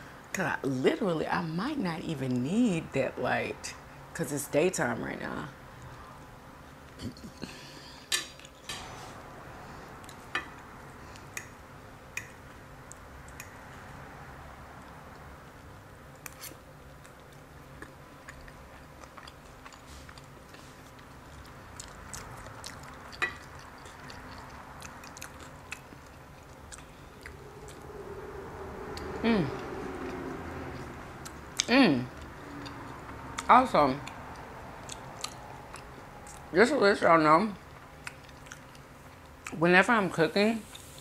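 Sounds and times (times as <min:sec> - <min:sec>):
close chewing: 0:16.1 - 0:36.6, 0:37.6 - 0:39.6.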